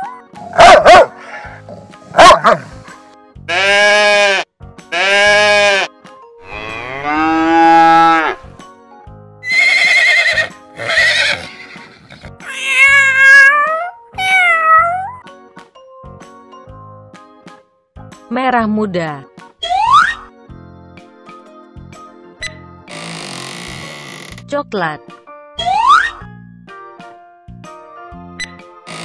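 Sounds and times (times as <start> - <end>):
children's background music: 0.0 - 3.7, 4.6 - 9.6, 10.4 - 23.0, 23.8 - 29.0
goat bleating: 3.5 - 5.9
cow mooing: 6.5 - 8.4
horse whinnying: 6.5 - 8.4, 9.4 - 15.1
cat meowing: 12.4 - 15.2.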